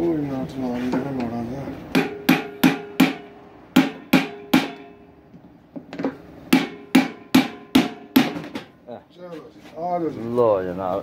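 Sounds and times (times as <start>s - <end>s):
hammer striking metal chisel: 1.9s - 5.0s, 6.5s - 8.7s.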